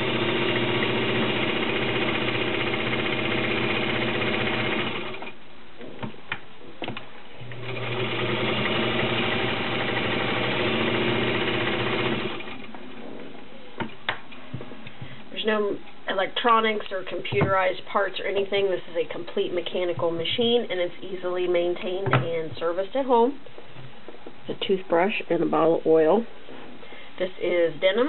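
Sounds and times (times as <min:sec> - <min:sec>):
sewing machine stitching: 0:00.0 - 0:05.4, 0:07.4 - 0:12.7.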